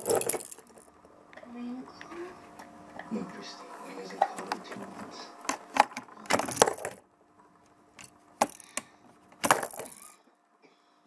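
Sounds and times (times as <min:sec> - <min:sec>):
plastic balls clattering down a chute: 0:00.0 - 0:00.9, 0:06.3 - 0:07.0, 0:09.4 - 0:10.2.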